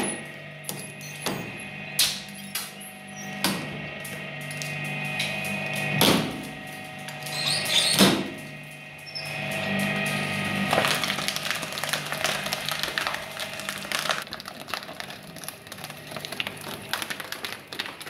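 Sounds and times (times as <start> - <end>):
shredder motor hum: 0.0 - 18.0
glass marbles cracking: 10.7 - 18.0.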